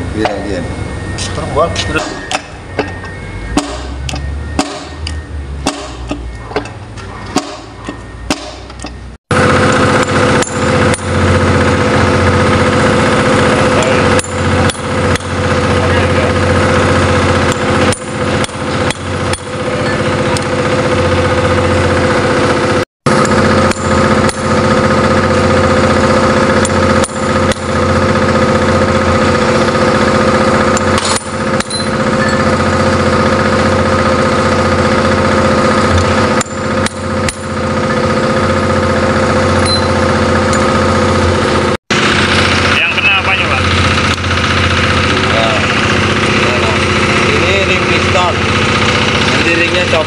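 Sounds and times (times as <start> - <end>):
engine running: 0.0 - 50.0
hammer tapping metal punch: 1.8 - 9.1.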